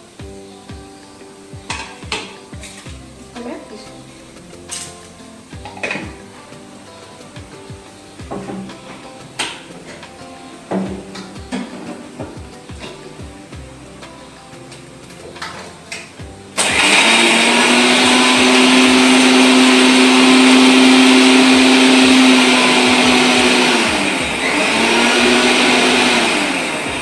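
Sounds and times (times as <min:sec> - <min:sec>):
mixer grinder motor humming: 0:16.6 - 0:27.0.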